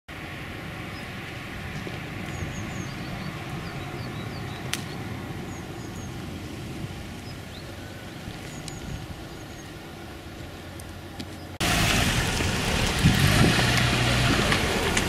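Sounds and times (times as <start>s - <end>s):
small birds chirping: 0.8s - 1.2s, 1.8s - 11.6s.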